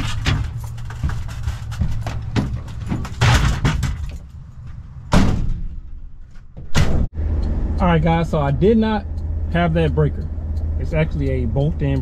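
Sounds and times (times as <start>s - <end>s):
plastic toolboxes clattering: 0.0s - 4.3s.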